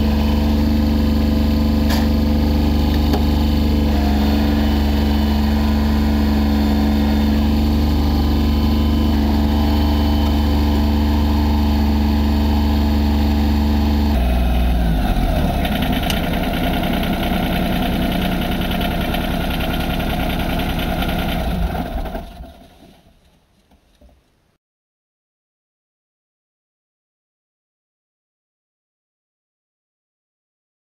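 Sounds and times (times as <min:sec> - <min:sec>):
tractor diesel engine idling: 0:00.0 - 0:22.8.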